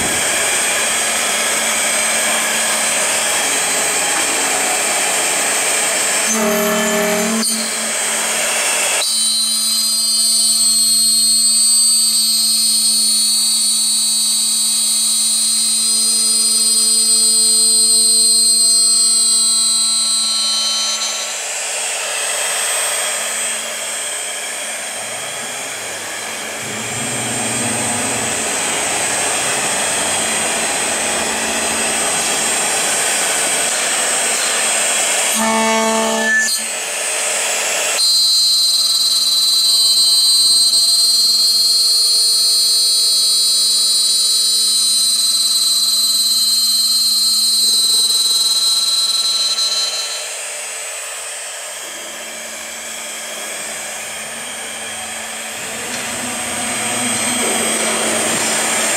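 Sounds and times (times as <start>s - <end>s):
milling spindle whining: 53.2s - 58.9s.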